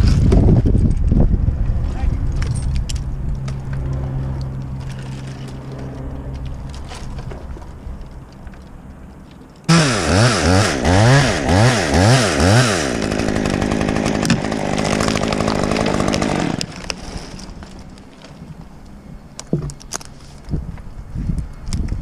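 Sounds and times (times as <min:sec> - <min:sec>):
chainsaw revving: 0:09.7 - 0:16.9.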